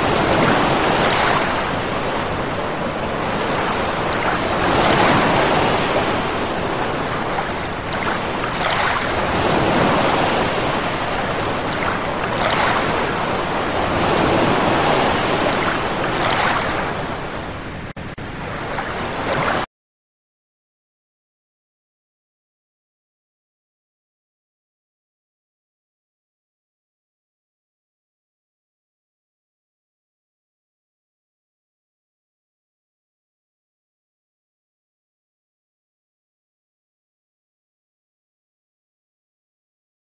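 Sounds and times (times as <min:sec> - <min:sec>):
sea waves washing in: 0:00.0 - 0:19.7.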